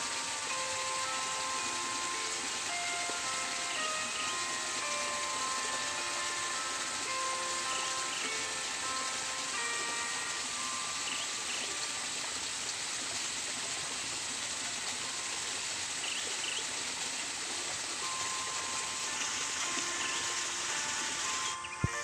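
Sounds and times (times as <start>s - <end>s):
stream flowing: 0.0s - 22.0s
faint bird chirps: 11.0s - 11.8s, 16.0s - 16.7s.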